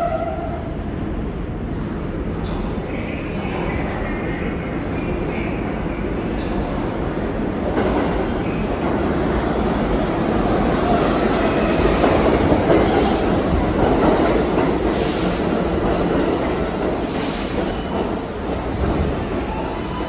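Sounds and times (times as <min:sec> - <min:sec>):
train wheels rumbling on rail: 0:07.6 - 0:20.0.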